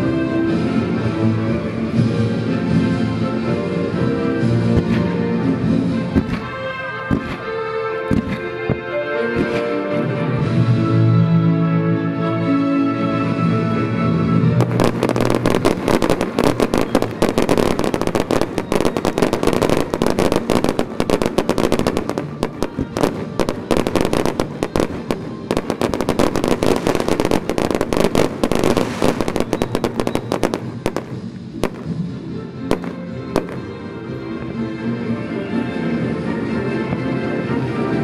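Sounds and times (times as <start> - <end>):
music: 0.0 - 38.0
fireworks crackling and popping: 4.8 - 9.8, 14.6 - 34.9.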